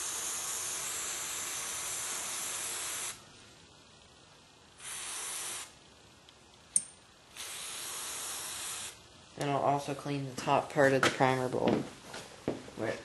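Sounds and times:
aerosol spray hiss: 0:00.0 - 0:03.3, 0:04.8 - 0:05.9, 0:07.3 - 0:09.1.

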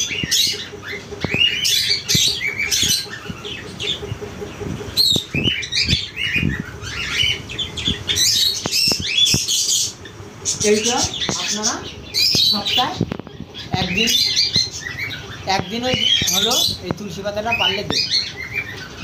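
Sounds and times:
birds chirping and squawking: 0:00.0 - 0:19.0
knocks and rustles from cages: 0:12.2 - 0:19.0.

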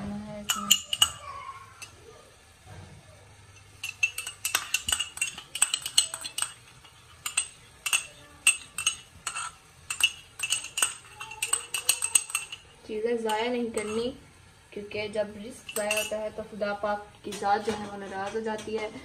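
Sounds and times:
metal spoon clinking in ceramic mug: 0:00.5 - 0:01.9, 0:03.6 - 0:12.7, 0:13.3 - 0:14.1, 0:15.6 - 0:16.2.

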